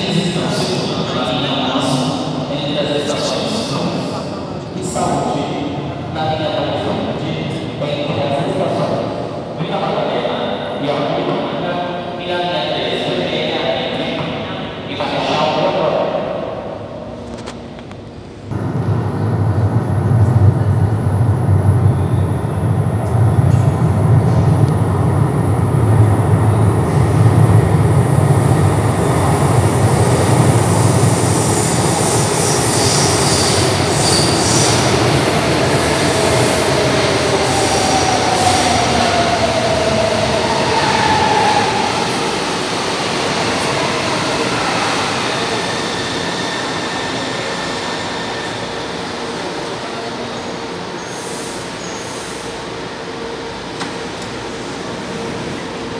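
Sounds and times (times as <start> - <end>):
train braking to a stop: 30.0 - 55.9.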